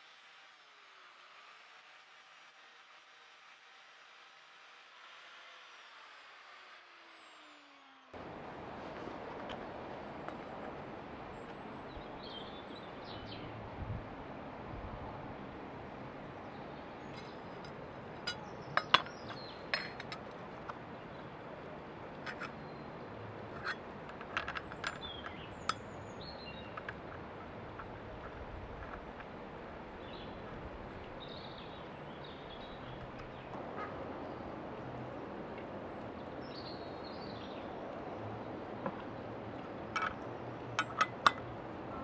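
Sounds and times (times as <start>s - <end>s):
metal blade clinking and tapping: 17.2s - 20.8s, 23.6s - 25.9s, 39.9s - 41.6s.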